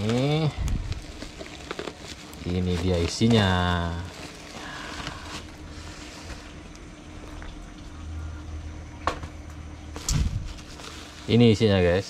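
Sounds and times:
plastic bag rustling: 0.0s - 8.0s, 9.9s - 12.0s
low hum: 3.7s - 11.4s.

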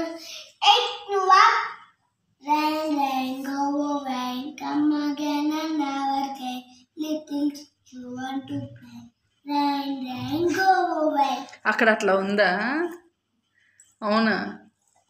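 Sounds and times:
child singing: 2.5s - 8.8s.

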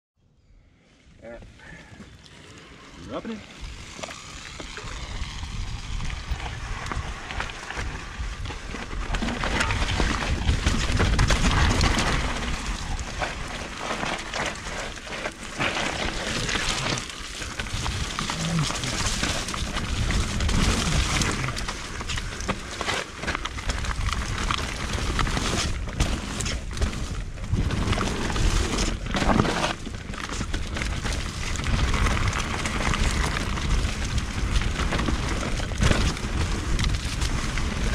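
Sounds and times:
tyres rolling over dirt: 1.5s - 37.9s
bike rattling over bumps: 2.3s - 37.9s
wind buffeting microphone: 4.6s - 13.2s.

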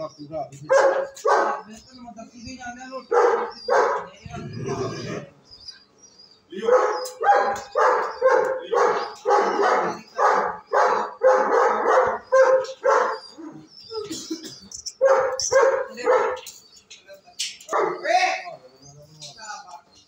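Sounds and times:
dog barking: 0.7s - 1.7s, 3.1s - 4.1s, 6.6s - 13.6s, 15.0s - 16.5s, 17.7s - 18.1s.

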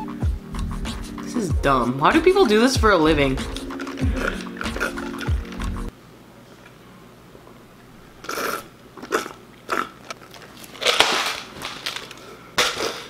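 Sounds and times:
slurping through a straw: 3.6s - 5.9s.

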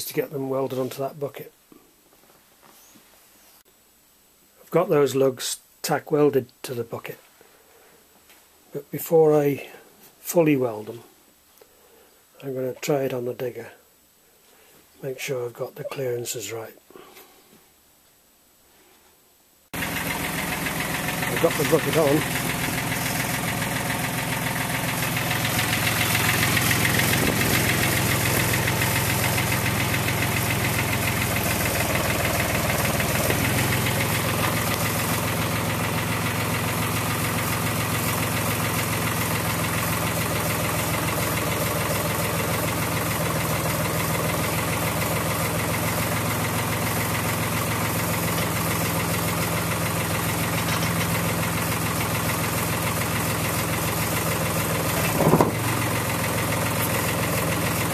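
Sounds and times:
diesel digger engine running: 19.8s - 57.9s
hydraulics moving bucket: 24.7s - 34.8s, 54.8s - 55.9s.

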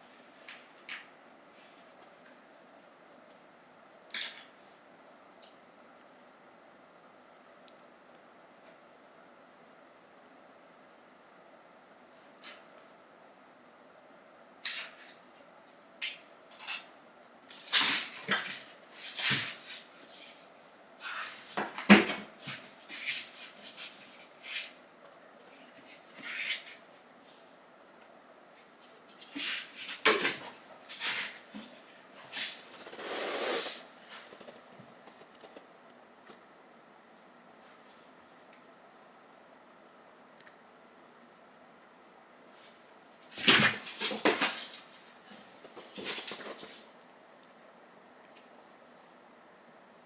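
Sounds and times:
cats scrabbling on cardboard: 43.3s - 46.9s.

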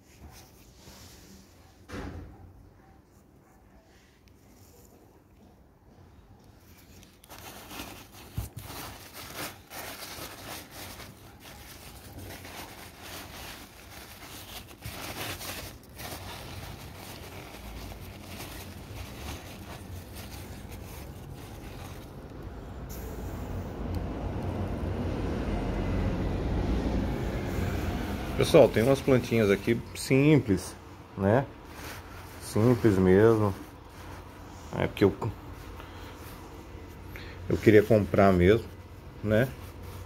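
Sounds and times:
packing paper rustling: 6.6s - 22.6s, 27.6s - 40.0s.

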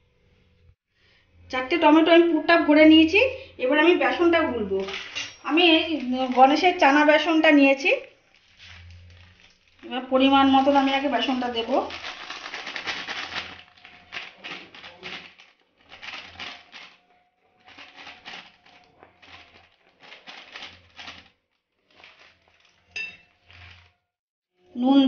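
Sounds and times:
flour spooned rustling and scraping: 8.1s - 24.0s.

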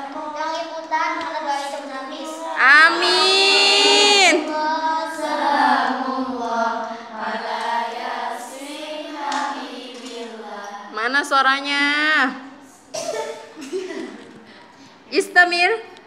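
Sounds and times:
girl singing: 0.0s - 10.9s.

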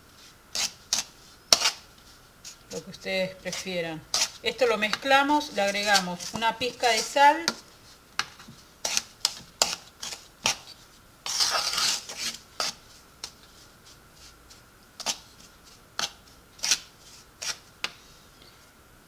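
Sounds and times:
spoon scraping wooden bowl: 0.5s - 1.8s, 2.4s - 7.6s, 8.4s - 12.8s.

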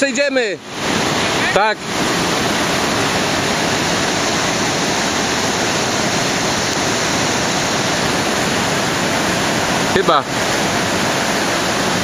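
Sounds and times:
mountain stream rushing: 0.0s - 12.0s.

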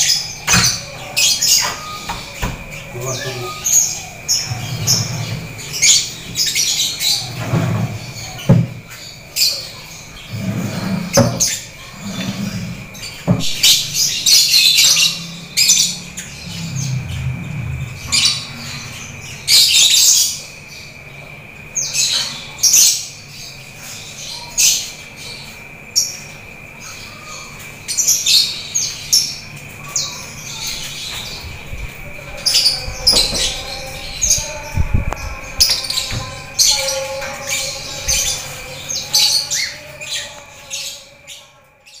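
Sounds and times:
canary singing: 0.0s - 42.0s
steady high tone: 13.4s - 20.1s.

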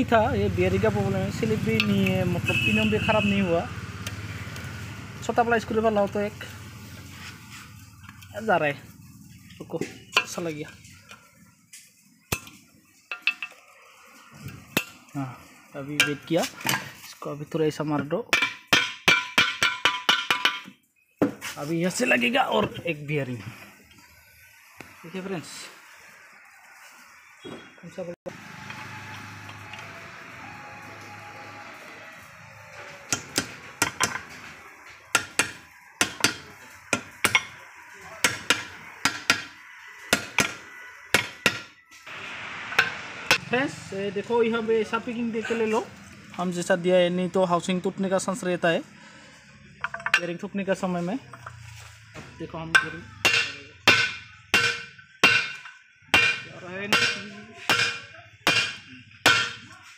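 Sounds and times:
hammer striking metal: 18.3s - 20.7s, 33.0s - 34.4s, 35.1s - 37.6s, 38.2s - 41.8s, 42.6s - 43.5s, 52.7s - 59.8s.

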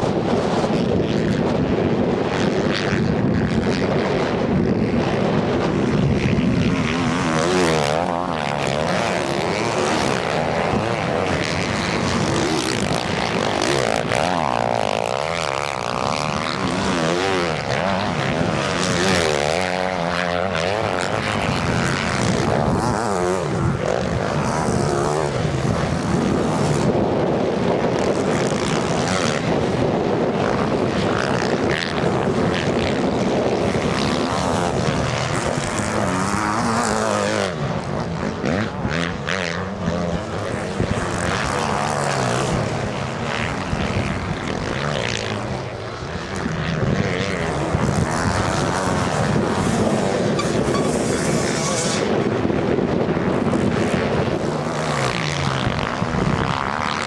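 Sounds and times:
motocross bikes revving: 5.5s - 27.0s, 27.6s - 52.2s.

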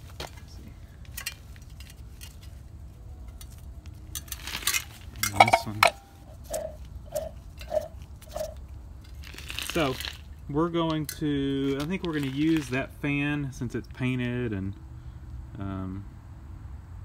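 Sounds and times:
metal parts clanking on concrete: 0.2s - 2.6s, 3.2s - 10.1s, 10.8s - 12.8s.

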